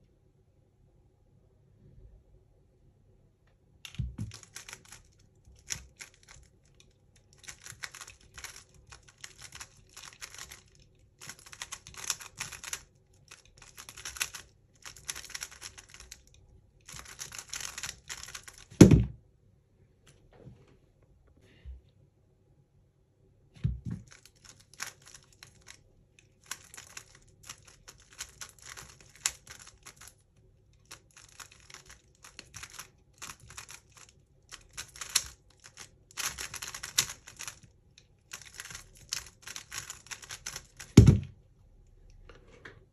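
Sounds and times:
puzzle cube clicking: 3.9s - 16.2s, 16.8s - 18.9s, 24.0s - 25.8s, 26.4s - 30.1s, 30.9s - 37.6s, 38.3s - 41.3s
thump: 18.8s - 19.2s, 41.0s - 41.3s.

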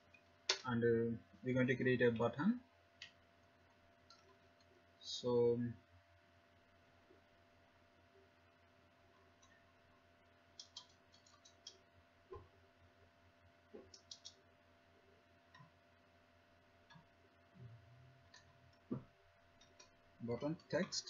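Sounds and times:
faint steady hum: 0.0s - 21.0s
computer keyboard typing: 10.6s - 11.8s, 13.8s - 14.4s.

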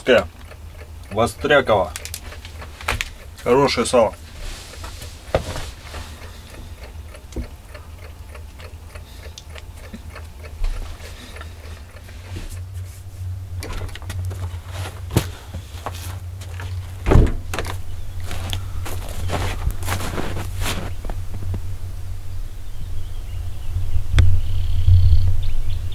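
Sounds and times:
alarm clock ticking: 0.0s - 4.8s, 5.9s - 12.7s
heavy thump: 17.0s - 17.8s.

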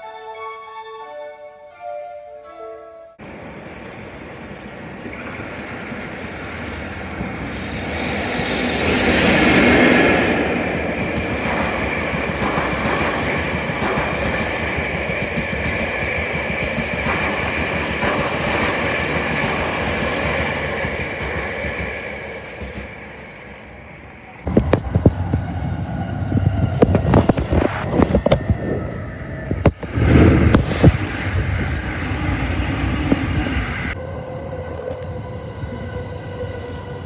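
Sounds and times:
electric locomotive passing: 1.8s - 37.0s
train wheels clicking over rail joints: 5.0s - 25.5s.

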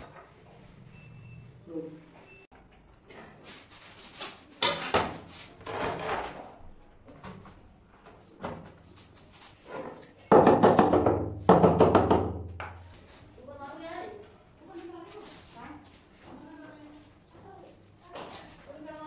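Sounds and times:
tile knocking against wall: 10.3s - 12.8s.

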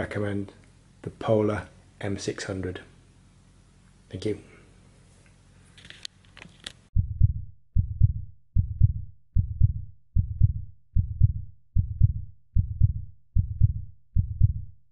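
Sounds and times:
heartbeat thumps: 7.0s - 14.8s.

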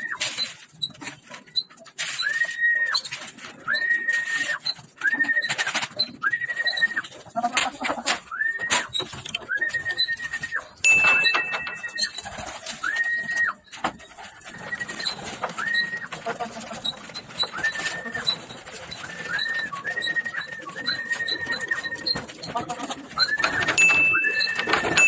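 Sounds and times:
pigeon wings flapping: 11.3s - 25.0s.

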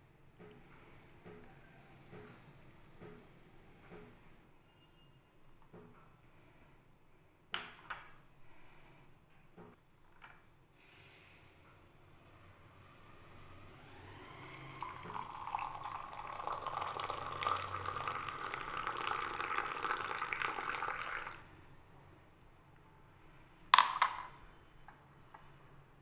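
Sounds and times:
tea pouring into a ceramic mug: 14.4s - 21.5s.

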